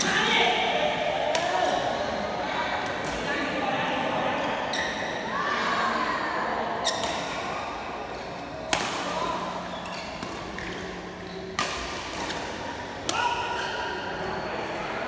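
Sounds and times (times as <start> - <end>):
racket smacking shuttlecock: 8.6 - 13.7.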